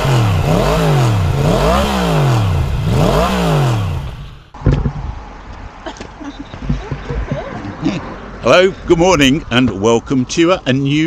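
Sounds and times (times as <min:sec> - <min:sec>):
motorcycle engine revving: 0:00.0 - 0:04.6.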